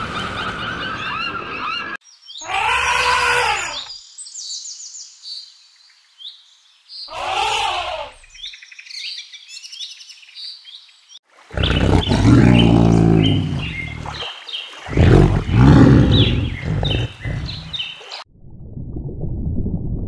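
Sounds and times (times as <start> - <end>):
small birds chirping: 1.0 - 18.2
tiger roaring: 11.5 - 14.2, 14.9 - 17.8.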